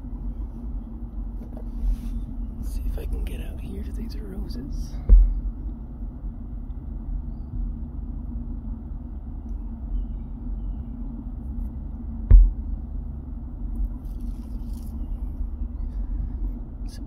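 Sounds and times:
faint steady hum: 0.0 - 17.0
low background rumble: 0.0 - 17.0
sharp thump: 5.0 - 5.4, 12.3 - 12.6.

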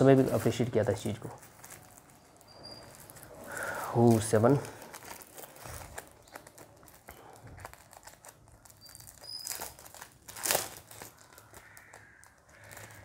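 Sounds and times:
plastic bags crinkling: 0.0 - 13.0.

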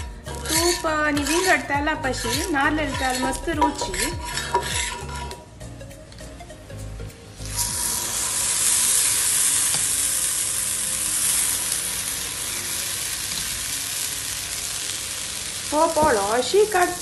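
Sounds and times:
batter sizzling on a hot pan: 0.0 - 5.4, 7.4 - 17.0.

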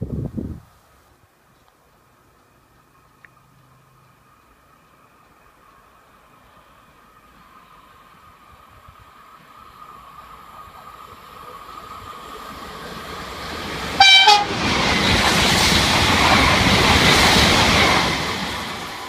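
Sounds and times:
train passing at speed: 2.0 - 19.0
train horn blast: 14.0 - 14.6.

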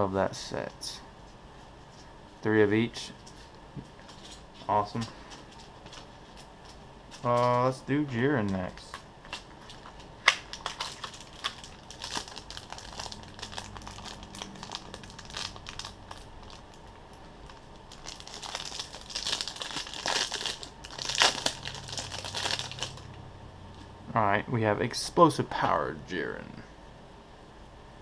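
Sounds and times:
plastic wrapping crinkling and tearing: 4.0 - 23.1.

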